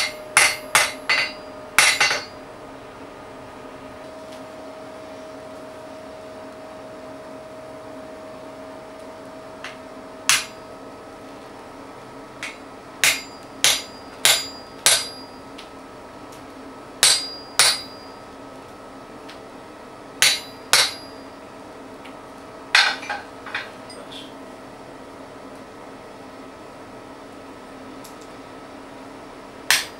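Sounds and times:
hammer striking chisel on hot steel: 0.0s - 2.4s, 9.6s - 10.6s, 12.4s - 15.7s, 17.0s - 18.2s, 20.2s - 21.2s, 22.8s - 23.7s, 29.7s - 29.9s.

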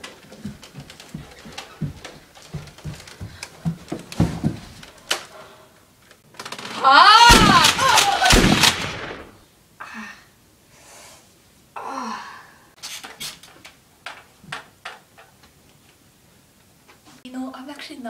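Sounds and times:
loud shout: 6.8s - 8.4s.

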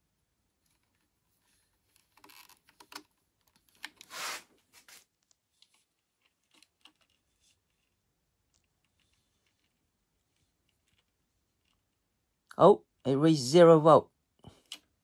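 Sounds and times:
rustling scrape: 4.0s - 8.0s.

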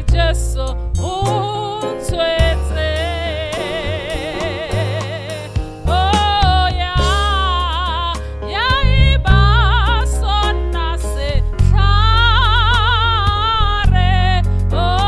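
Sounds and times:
amplified instrumental backing: 0.0s - 15.0s
woman singing into a microphone: 0.0s - 15.0s.

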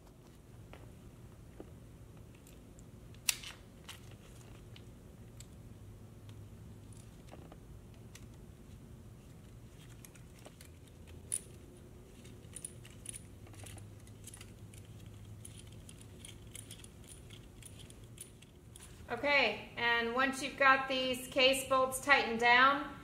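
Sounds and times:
low steady hum: 0.0s - 23.0s
metallic clicks of bolts and tool: 12.2s - 18.9s.

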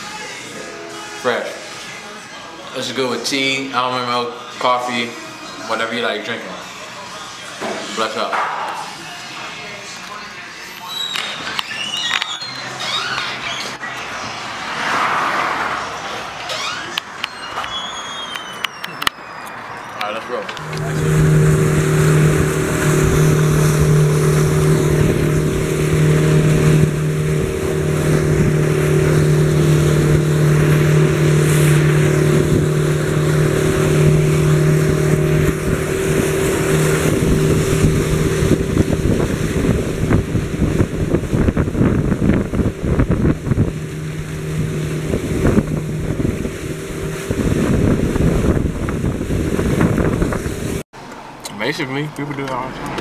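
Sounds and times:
motorboat engine drone: 20.5s - 50.8s
water rushing and splashing: 20.6s - 50.8s
wind on microphone: 20.6s - 50.8s.

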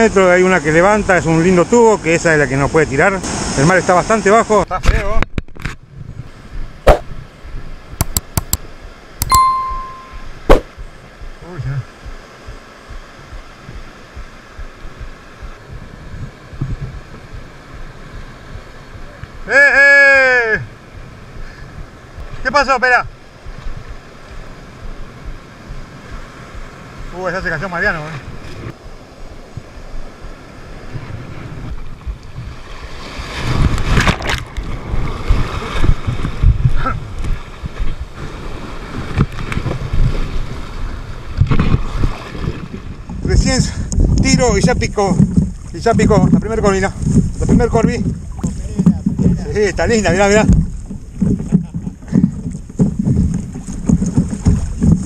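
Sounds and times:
surf breaking on beach: 0.0s - 5.2s, 9.3s - 55.0s
sharp wave splashes: 2.8s - 4.6s
wind buffeting microphone: 4.7s - 8.6s, 10.3s - 19.5s, 20.5s - 55.0s.

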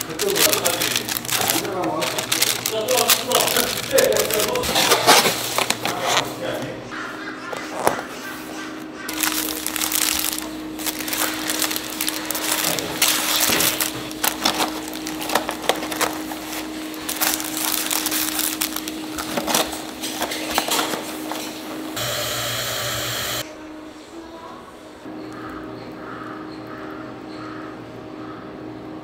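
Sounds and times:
cardboard and plastic rustling: 0.0s - 6.7s, 9.1s - 22.0s.

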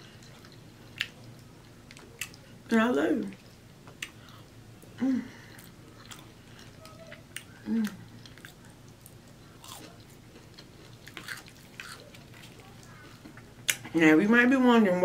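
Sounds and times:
wet chewing: 5.5s - 13.9s.

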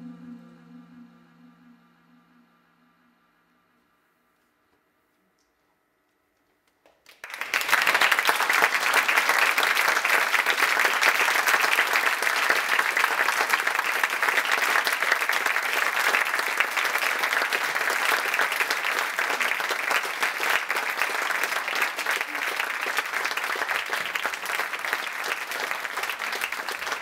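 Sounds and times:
audience applauding: 7.0s - 27.0s.

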